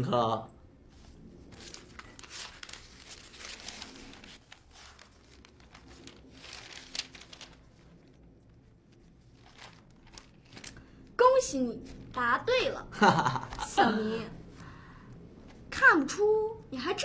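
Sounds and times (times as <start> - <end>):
paper pages rustling: 0.9 - 11.1, 11.8 - 12.4.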